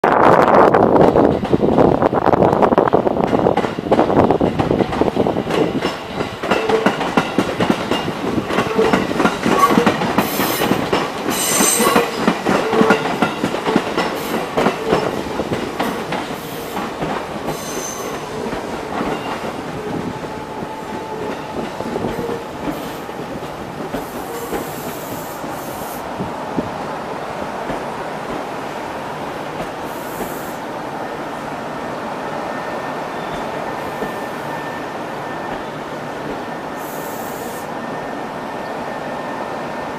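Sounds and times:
train wheels clattering over joints: 3.2s - 25.7s
train wheels squealing: 8.8s - 13.1s, 17.5s - 20.0s, 32.3s - 39.9s.

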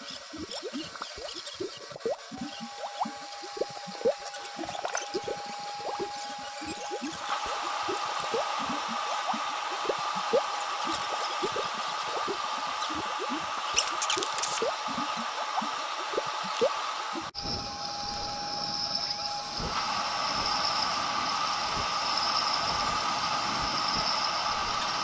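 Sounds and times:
bubbling water: 0.0s - 17.4s.

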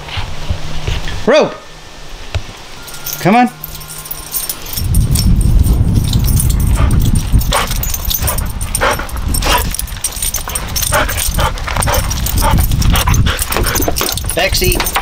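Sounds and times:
low rumble: 3.6s - 14.4s.

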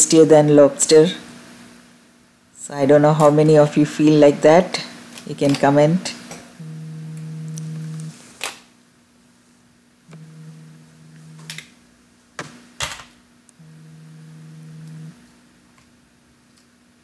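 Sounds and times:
faint steady hum: 0.0s - 17.0s
low buzz: 6.6s - 8.2s, 10.1s - 11.7s, 13.5s - 15.2s.

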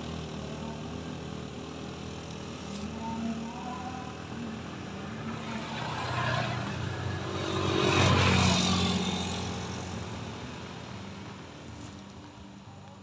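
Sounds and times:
scooter engine labouring: 0.0s - 13.0s.

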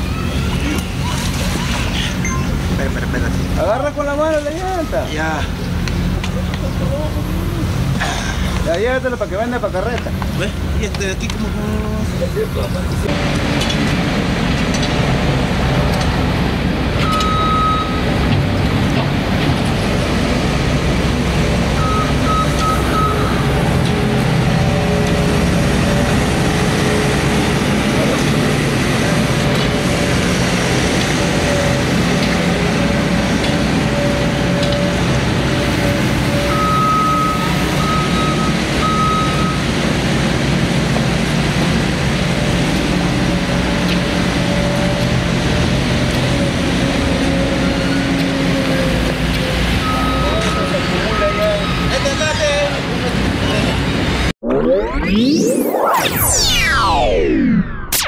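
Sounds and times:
loader engine running: 0.0s - 55.4s
reversing alarm beeping: 17.0s - 18.1s, 21.8s - 23.5s, 33.8s - 39.8s, 49.8s - 52.4s.

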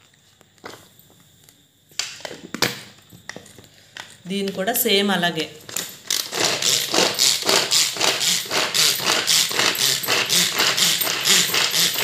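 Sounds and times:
pull cord whirring: 5.7s - 12.0s
carrot pieces rattling in bowl: 6.1s - 12.0s.

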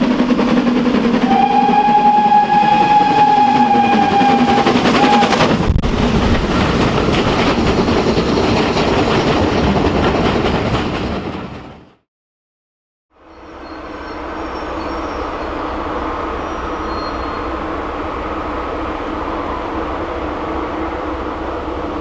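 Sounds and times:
train rumbling past: 0.0s - 12.0s, 13.2s - 22.0s
steam locomotive whistle: 1.2s - 5.5s, 13.4s - 17.8s.

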